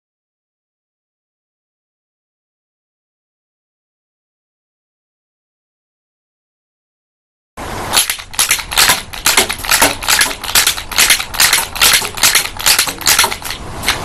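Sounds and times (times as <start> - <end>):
toy pistol firing with wooden clacks: 8.0 - 14.0.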